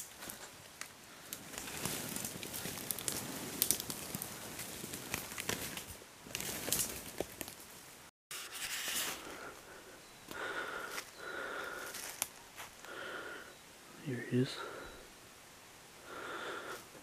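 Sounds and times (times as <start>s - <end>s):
sticks snapping: 0.0s - 7.6s
person breathing hard: 9.1s - 12.2s, 12.8s - 13.6s, 14.6s - 15.0s, 16.0s - 17.0s
footsteps crunching through leaves: 11.8s - 12.8s.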